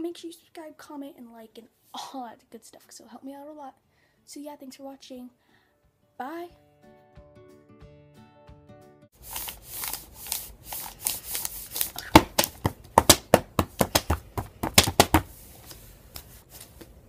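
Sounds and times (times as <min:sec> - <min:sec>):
hands tapping a beat: 0:11.8 - 0:15.3.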